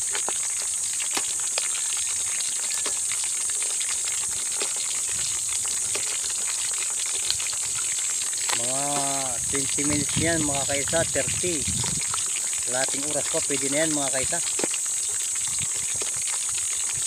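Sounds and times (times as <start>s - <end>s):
hot oil sizzling: 0.0s - 17.0s
small crackles and pops: 0.0s - 17.0s.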